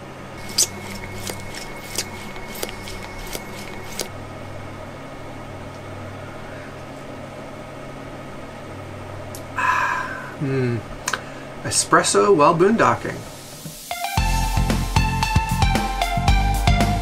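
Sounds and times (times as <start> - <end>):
steady low hum: 0.0 - 12.1
hand pump clicking: 0.4 - 4.1.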